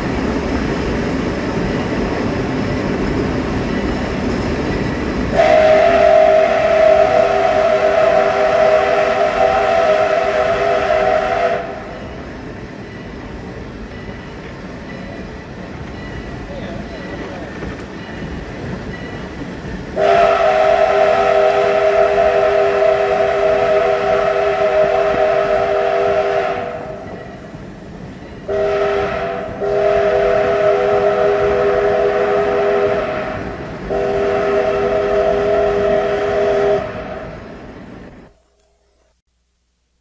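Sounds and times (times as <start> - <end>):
train rumbling: 0.0 - 39.2
steam whistle blasts: 5.3 - 12.1, 20.0 - 27.1, 28.5 - 37.4.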